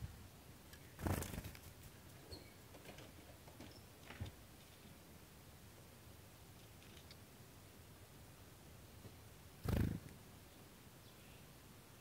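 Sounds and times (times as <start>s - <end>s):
bird wings fluttering: 1.0s - 2.2s, 9.6s - 10.1s.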